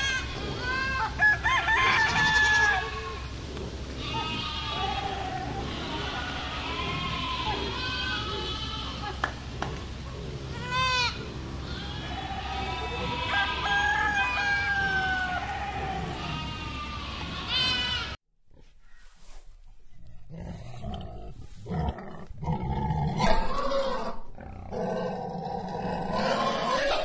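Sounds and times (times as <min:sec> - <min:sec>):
goats bleating: 0:01.9 - 0:03.4, 0:04.0 - 0:09.2, 0:10.5 - 0:18.2, 0:23.0 - 0:24.4, 0:25.6 - 0:27.0
lion growling and grunting: 0:20.0 - 0:27.0.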